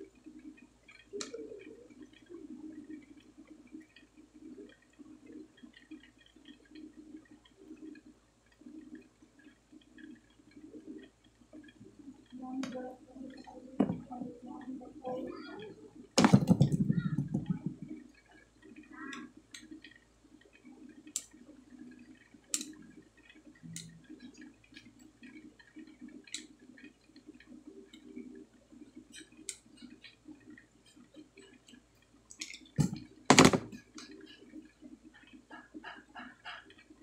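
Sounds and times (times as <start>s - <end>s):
clicks and taps on circuit board: 15.6s - 37.0s.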